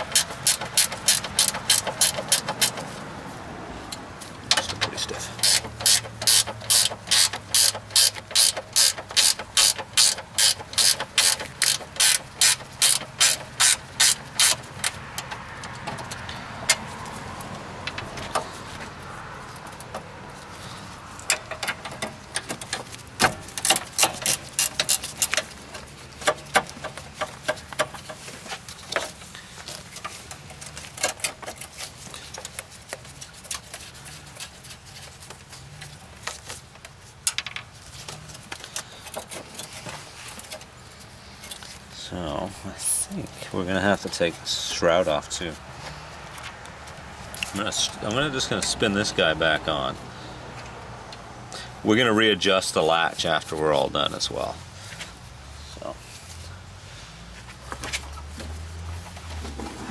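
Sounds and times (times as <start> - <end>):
ratcheting wrench clicking: 0.0 - 2.8, 5.4 - 15.4, 23.6 - 25.5.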